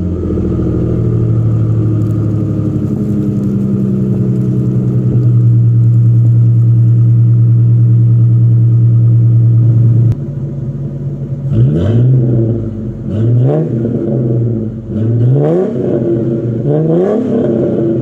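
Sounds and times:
car engine exhaust running: 0.0s - 18.0s.

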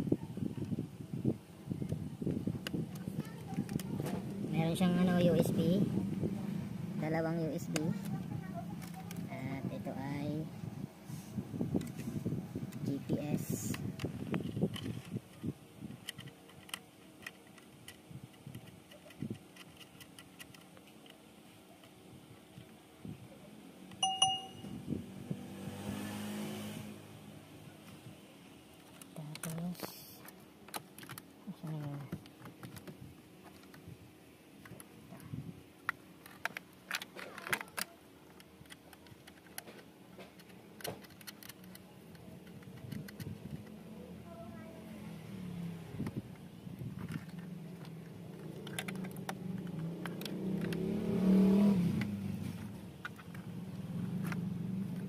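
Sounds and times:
plastic connectors clicking and rustling: 2.2s - 5.7s, 7.1s - 9.9s, 12.7s - 22.8s, 28.7s - 33.8s, 34.6s - 43.8s, 46.0s - 50.8s, 52.0s - 55.0s.

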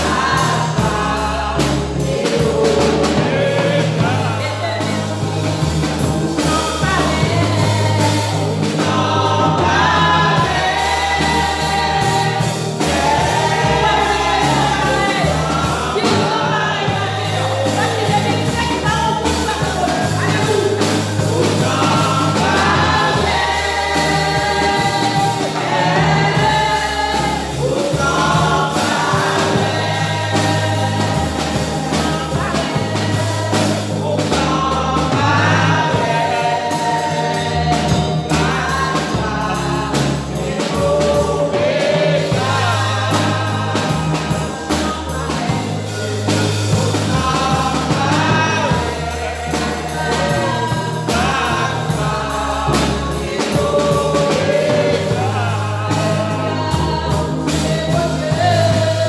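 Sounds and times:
backing singers: 0.0s - 59.0s
band with steady beat: 0.0s - 59.0s
woman singing into a microphone: 6.3s - 23.3s, 52.8s - 59.0s.

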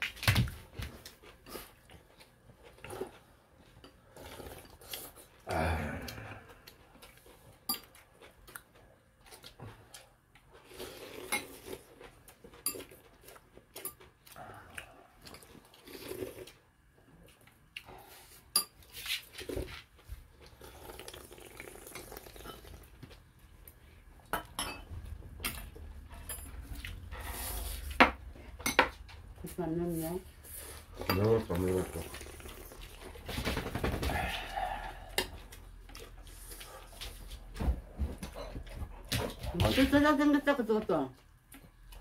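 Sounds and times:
utensils clinking on dishes: 24.3s - 26.5s, 31.0s - 31.4s.

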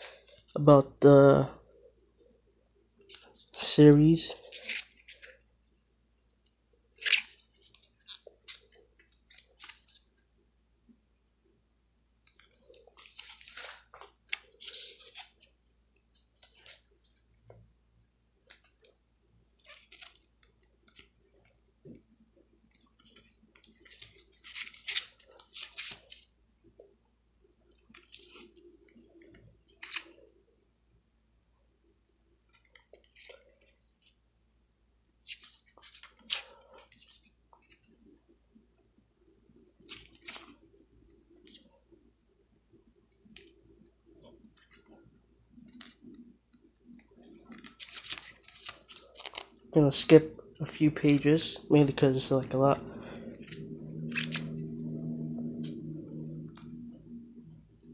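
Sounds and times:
paper pages turning: 3.0s - 5.4s, 6.9s - 10.3s, 12.2s - 17.2s, 19.5s - 21.6s, 22.7s - 26.4s, 27.7s - 30.4s, 32.4s - 34.2s, 35.2s - 38.2s, 39.8s - 41.8s, 45.6s - 56.8s.

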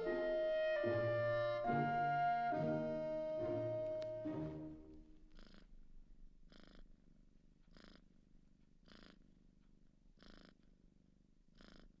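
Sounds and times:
kitten purring: 5.1s - 12.0s.

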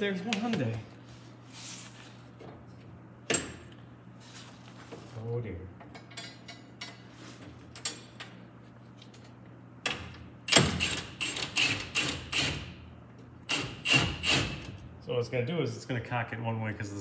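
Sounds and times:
impact wrench hammering: 13.4s - 14.8s.

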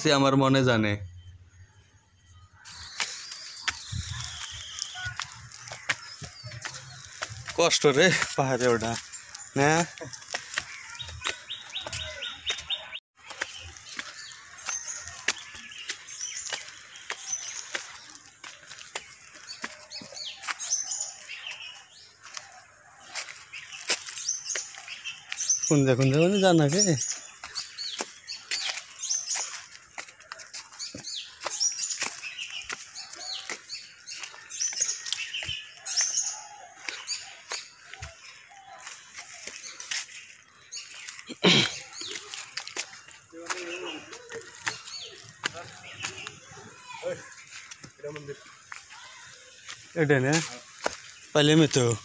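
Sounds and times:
birds chirping: 0.0s - 52.0s
lower bird calls: 1.1s - 7.7s
footsteps on dry leaves and stones: 2.6s - 52.0s.

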